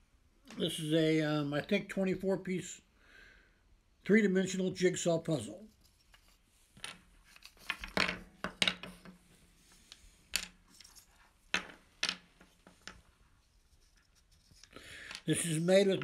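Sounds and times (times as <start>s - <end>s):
wooden puzzle pieces clicking: 14.3s - 15.4s.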